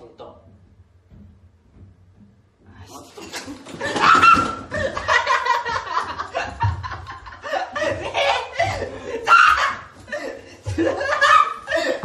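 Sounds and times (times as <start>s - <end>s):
young men laughing: 3.2s - 12.0s.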